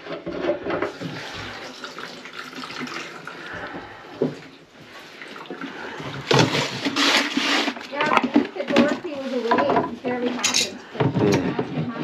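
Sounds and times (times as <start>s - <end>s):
water running in steel sink: 0.8s - 4.0s.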